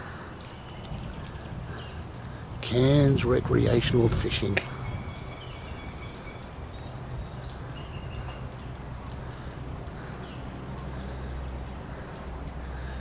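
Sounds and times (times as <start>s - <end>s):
faint high chirp: 4.7s - 8.4s
faint ticks: 10.8s - 13.0s.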